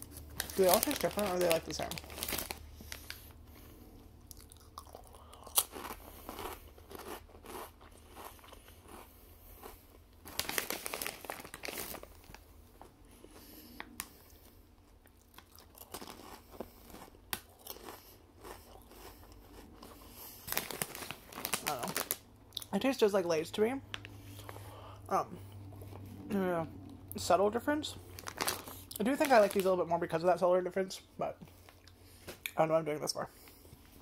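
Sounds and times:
person crunching chips: 0:00.0 - 0:03.4, 0:04.2 - 0:14.2, 0:15.0 - 0:22.7, 0:28.0 - 0:29.9.

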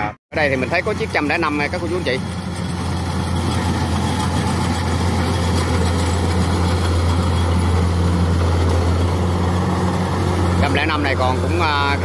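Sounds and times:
combine harvester engine drone: 0:00.3 - 0:12.0
machinery noise: 0:00.4 - 0:12.0.

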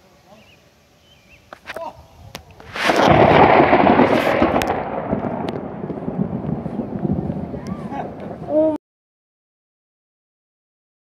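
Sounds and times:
thunder crack and rumble: 0:02.7 - 0:08.8.

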